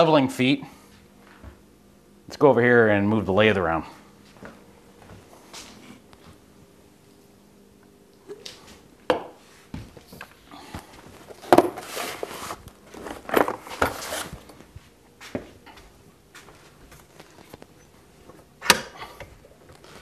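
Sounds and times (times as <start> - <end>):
objects knocking on wooden workbench: 11.4 - 11.9.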